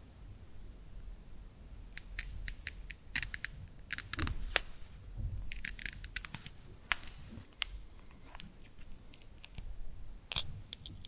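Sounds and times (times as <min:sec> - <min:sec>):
velcro peeling apart: 0:01.9 - 0:04.8, 0:05.4 - 0:09.7.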